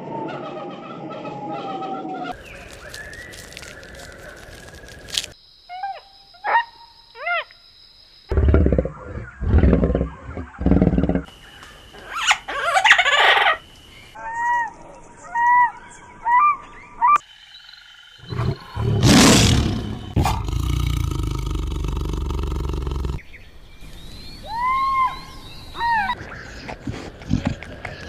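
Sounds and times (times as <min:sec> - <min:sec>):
animal roaring: 0:08.3 - 0:11.3, 0:18.2 - 0:23.2
low animal rumble: 0:08.3 - 0:11.3, 0:20.1 - 0:23.2, 0:26.2 - 0:28.0.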